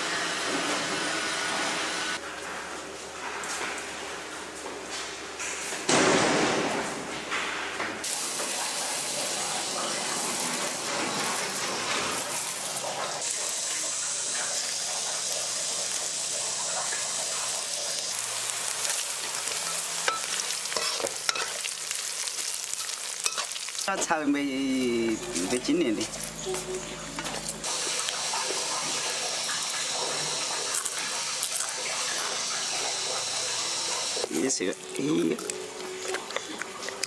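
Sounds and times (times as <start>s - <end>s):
food sizzling in a wok: 8.0s - 35.3s
metal spatula scraping pan: 19.4s - 21.7s.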